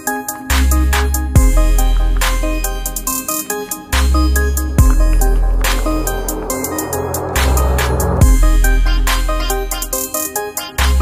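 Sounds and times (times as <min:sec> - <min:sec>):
electronic music with heavy bass: 0:00.8 - 0:09.1.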